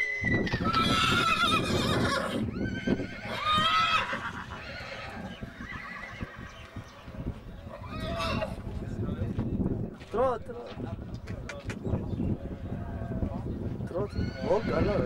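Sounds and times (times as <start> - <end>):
horse whinnying: 0.0 - 6.7, 7.7 - 8.6, 14.0 - 15.0.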